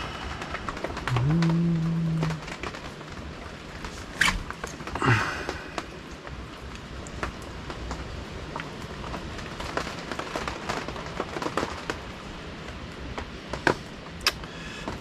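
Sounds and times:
low hiss: 0.0 - 9.6.

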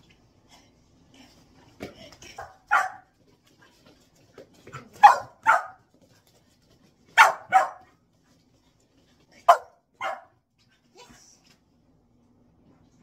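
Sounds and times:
dog barking: 2.4 - 3.0, 5.0 - 5.8, 7.2 - 7.9, 9.5 - 10.4.

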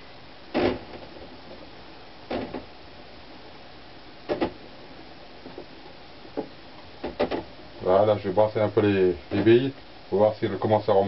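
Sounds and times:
steady hiss: 0.0 - 11.0
knocks and clatters on rolling board: 6.3 - 7.5.

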